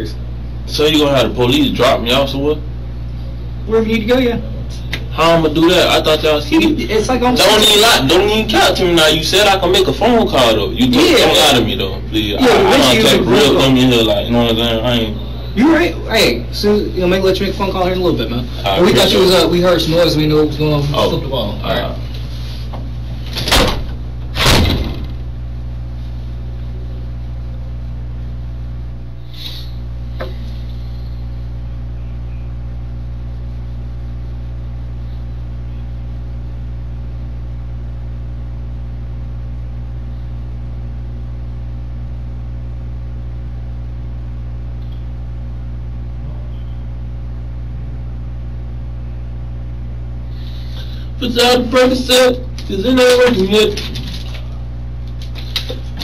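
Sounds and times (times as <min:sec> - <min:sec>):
steady low hum: 0:00.0 - 0:56.0
door shutting: 0:23.3 - 0:25.2
loud knocks: 0:23.4 - 0:25.2.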